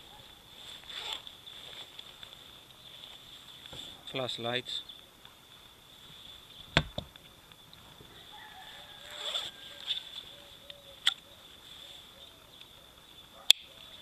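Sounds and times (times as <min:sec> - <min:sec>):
jacket fabric rustle: 0:00.0 - 0:04.1, 0:08.3 - 0:10.6.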